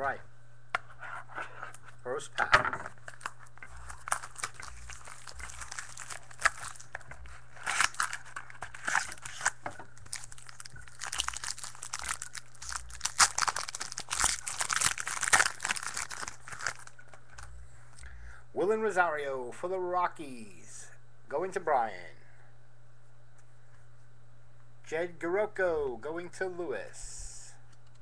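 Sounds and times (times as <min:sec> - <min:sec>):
foil wrapper tearing and crinkling: 0:03.0 - 0:17.5.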